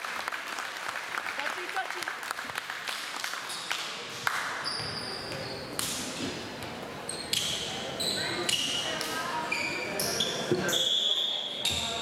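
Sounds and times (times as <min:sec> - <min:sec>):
sneaker squeaks: 0:04.6 - 0:05.9, 0:07.0 - 0:12.0.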